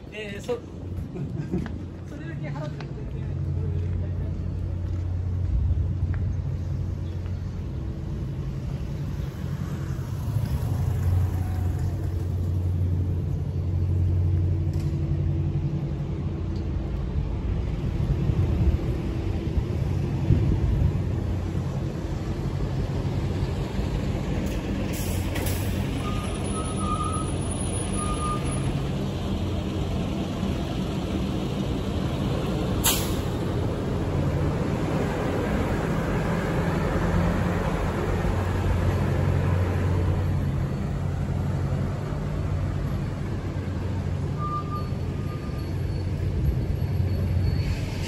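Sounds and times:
traffic engines passing: 0.0 - 48.0.

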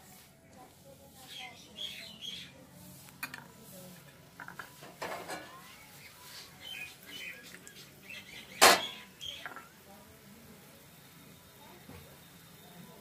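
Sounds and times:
faint chirps: 5.7 - 9.8.

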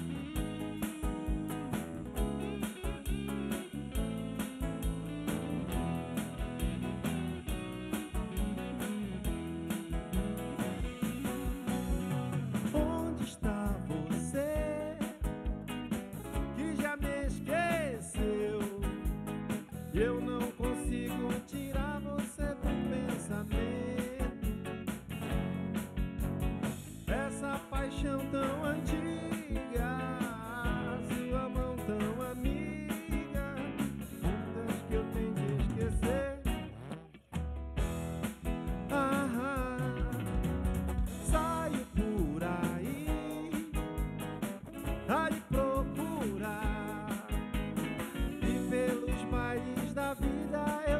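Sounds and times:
drum kit beat: 0.0 - 50.9
electric bass: 0.0 - 50.9
electric guitars: 0.0 - 50.9
lead vocal singing: 16.6 - 19.1, 27.1 - 33.7, 34.4 - 36.5, 38.9 - 40.4, 41.2 - 43.9, 45.1 - 47.4, 48.4 - 50.9.

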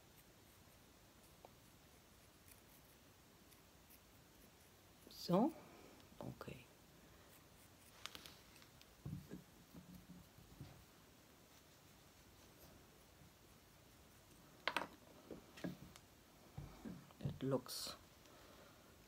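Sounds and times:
modelling tool scratching clay: 0.0 - 5.5, 7.2 - 10.8.

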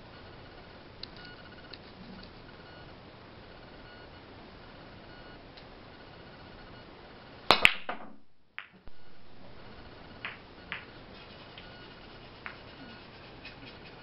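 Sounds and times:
billiard balls clattering: 7.5 - 8.8, 10.2 - 11.6
billiard balls cracking together: 7.5 - 8.8, 10.2 - 11.7, 12.4 - 12.8.

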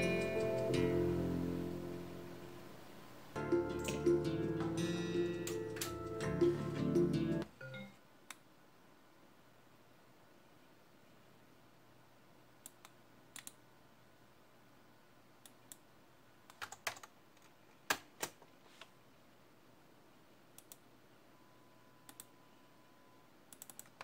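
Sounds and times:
faint background hum: 0.0 - 24.0
keyboard and mouse clicks: 3.7 - 4.1, 12.6 - 13.6, 16.5 - 18.4, 20.6 - 20.9, 22.1 - 22.3, 23.5 - 24.0.

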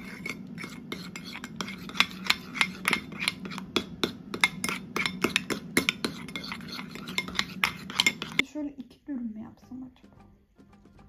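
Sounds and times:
steady low hum: 0.0 - 11.0
spoon clinking against bowl: 0.2 - 8.4.

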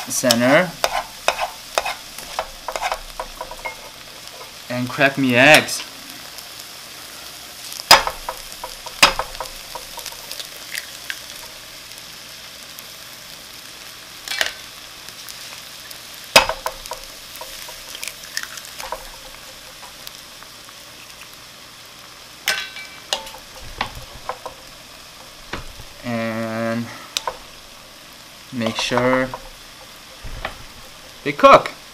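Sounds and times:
wooden spoon stirring in pan: 0.0 - 6.6, 7.7 - 11.6, 15.3 - 21.4, 23.0 - 31.9
food sizzling in a frying pan: 0.0 - 31.9
eggs being cracked: 16.4 - 20.0.

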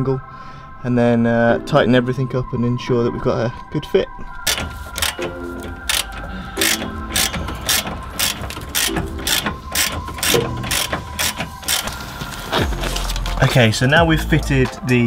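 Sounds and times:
ratchet wrench clicking: 4.5 - 12.0.

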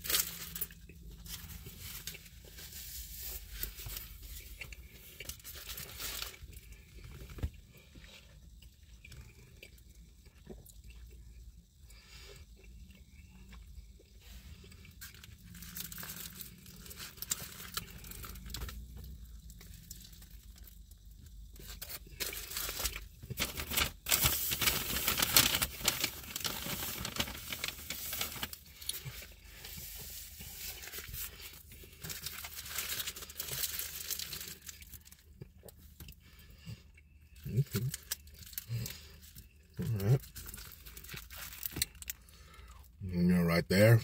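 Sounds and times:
paper wrapper crinkling: 0.0 - 7.5, 15.0 - 35.3, 37.5 - 42.2.

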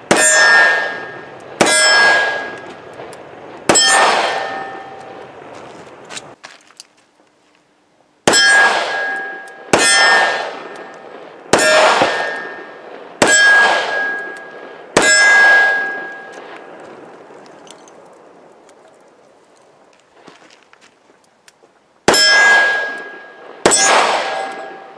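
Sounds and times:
steel target clanging: 0.0 - 2.9, 3.7 - 5.2, 8.3 - 16.6, 22.1 - 24.9.

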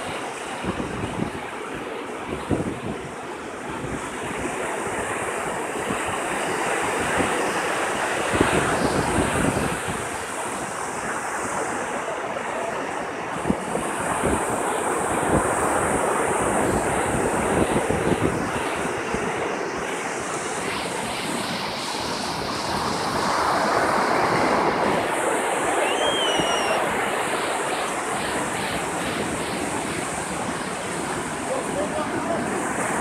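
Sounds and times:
wind buffeting microphone: 0.0 - 12.2, 13.1 - 33.0
ocean surf breaking: 0.0 - 33.0
faint high chirp: 25.8 - 26.8.

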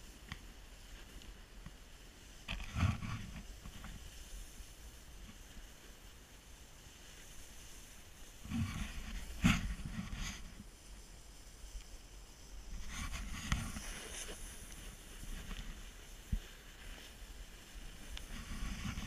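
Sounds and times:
snowboard scraping over snow: 0.0 - 19.0
wind on microphone: 8.0 - 11.6, 12.4 - 19.0.

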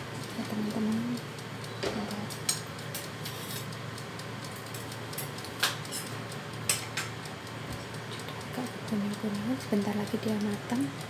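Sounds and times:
convection oven humming: 0.0 - 11.0
sharp ticks: 0.2 - 11.0.

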